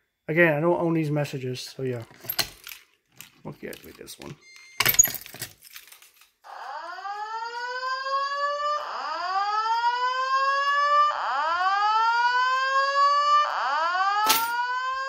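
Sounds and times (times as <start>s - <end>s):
keys jangling: 2.0s - 4.1s, 4.8s - 6.4s
fire alarm whoop tone: 6.4s - 15.0s.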